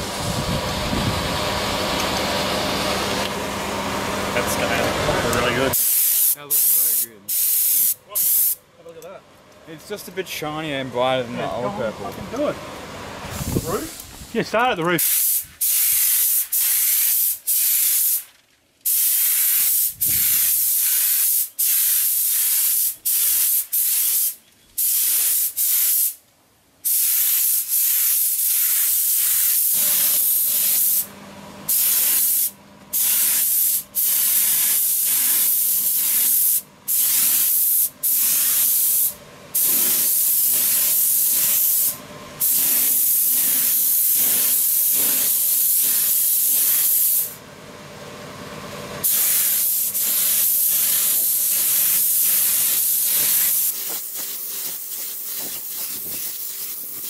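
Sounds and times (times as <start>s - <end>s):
spray gun hissing: 5.7s - 8.6s, 15.0s - 26.2s, 26.8s - 31.1s, 31.7s - 47.4s, 49.0s - 57.0s.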